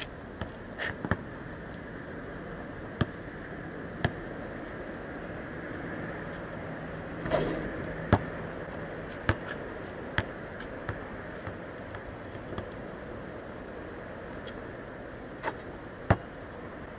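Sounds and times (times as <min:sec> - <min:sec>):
basketball bouncing on asphalt: 0:00.4 - 0:01.4, 0:03.0 - 0:03.3, 0:04.0 - 0:04.3, 0:07.2 - 0:12.7, 0:16.0 - 0:16.3.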